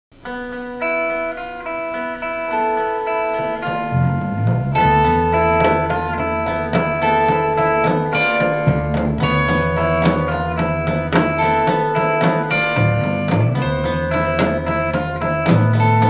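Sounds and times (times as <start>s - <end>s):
held-note melody: 0.3s - 15.2s
music beat: 1.0s - 16.0s
bass line: 2.6s - 11.9s, 12.5s - 16.0s.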